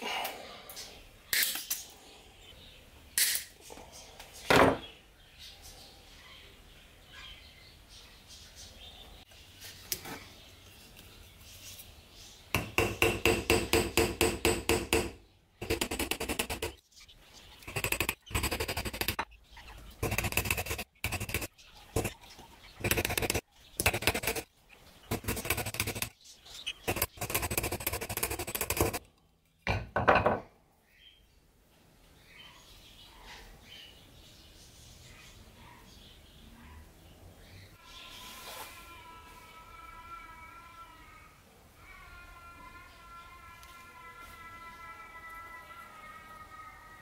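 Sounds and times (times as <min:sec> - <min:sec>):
small hammer tapping metal: 0:12.6 - 0:16.6.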